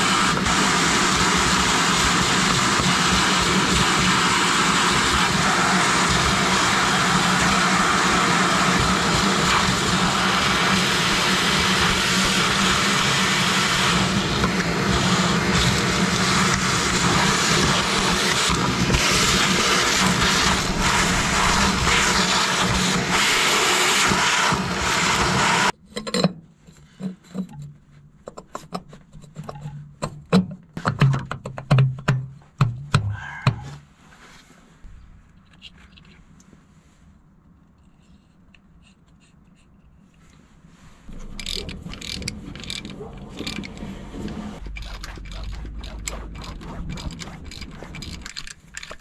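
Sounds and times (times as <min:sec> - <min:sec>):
shop vacuum running: 0:00.0 - 0:25.8, 0:41.1 - 0:48.3
metal parts knocking and clinking: 0:41.2 - 0:43.8, 0:44.6 - 0:49.0.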